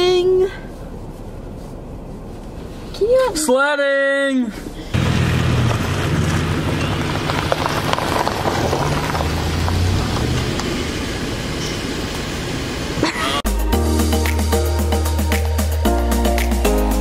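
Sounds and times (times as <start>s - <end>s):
car engine rumbling: 0.0s - 14.1s
tyres hissing on wet road: 4.9s - 13.4s.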